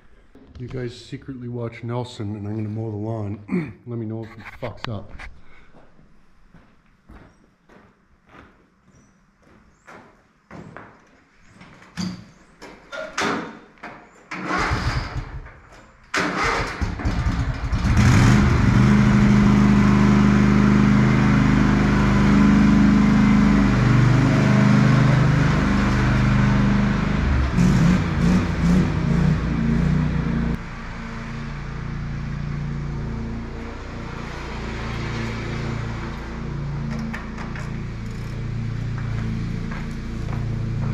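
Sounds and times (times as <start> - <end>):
lawn mower engine running: 16.2 - 40.9.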